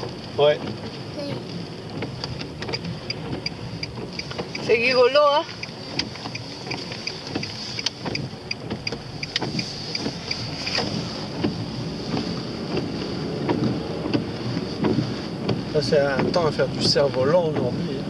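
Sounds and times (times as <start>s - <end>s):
tyre and road noise: 0.0s - 18.0s
light ticks and clicks: 0.2s - 17.7s.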